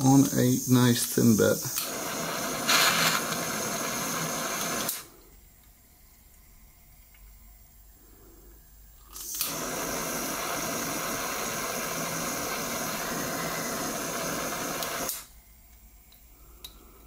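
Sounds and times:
blowtorch hissing: 0.0 - 5.2, 9.2 - 15.4
blowtorch switch click: 14.6 - 15.3.

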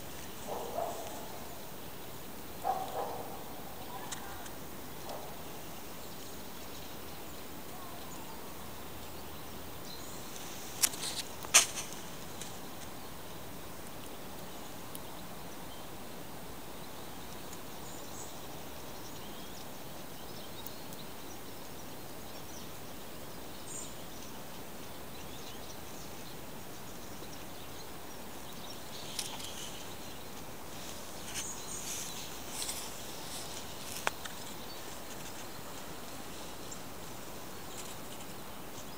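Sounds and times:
outdoor background noise: 0.0 - 38.9
high chirps and ticks: 26.8 - 38.9.

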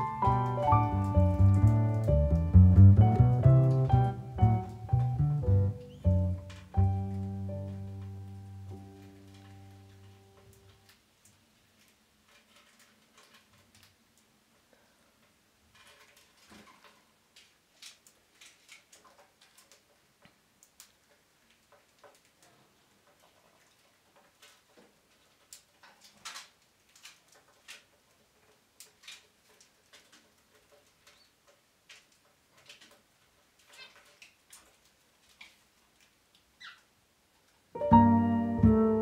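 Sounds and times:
bird chick squeaks and clicks: 33.7 - 34.2, 36.6 - 36.9.

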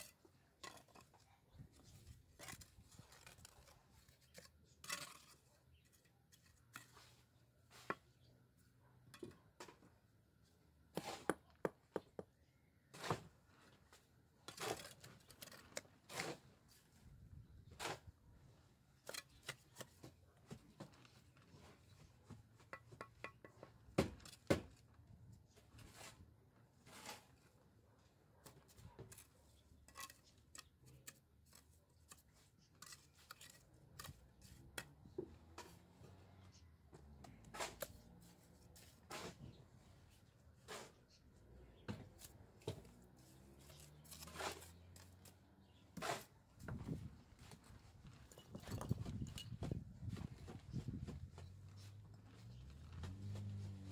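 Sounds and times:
stone masonry taps and knocks: 9.1 - 10.0, 10.9 - 12.4, 22.0 - 25.0, 46.2 - 51.5.

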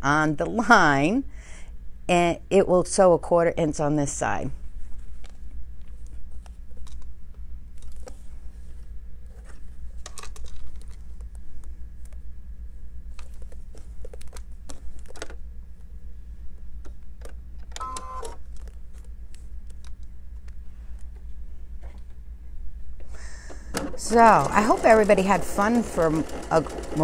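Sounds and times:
sewing machine hum: 23.5 - 27.0.

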